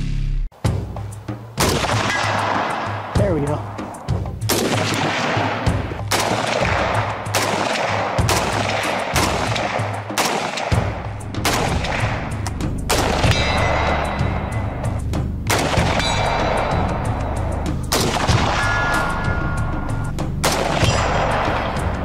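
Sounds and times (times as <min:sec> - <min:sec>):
music with heavy bass: 0:00.0 - 0:02.0, 0:10.9 - 0:22.0
rifle shots with echo: 0:01.6 - 0:14.9, 0:15.5 - 0:17.1, 0:17.8 - 0:19.3, 0:20.4 - 0:22.0.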